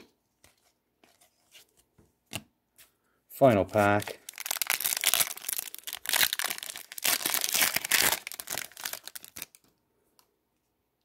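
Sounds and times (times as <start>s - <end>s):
foil wrapper crinkling: 3.7s - 9.7s.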